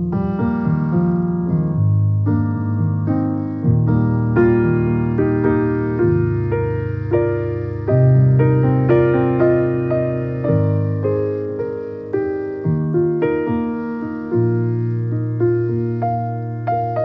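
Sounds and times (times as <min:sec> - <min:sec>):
gentle piano music: 0:00.0 - 0:17.0.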